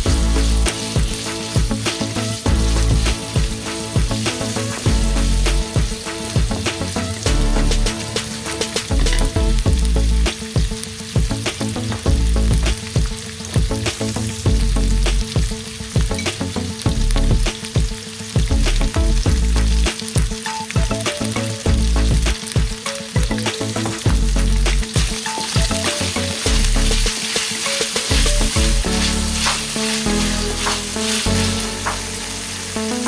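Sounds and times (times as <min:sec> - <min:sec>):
food sizzling in hot oil: 0:00.0 - 0:33.0
wooden spatula clicking and scraping: 0:25.6 - 0:32.0.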